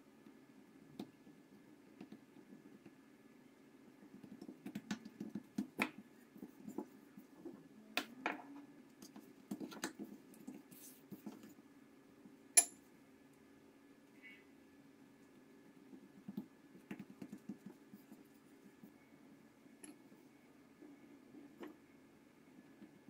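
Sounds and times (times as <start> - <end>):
faint low hum: 0.0 - 23.0
dough being pressed by hand: 4.1 - 8.1, 15.9 - 18.8.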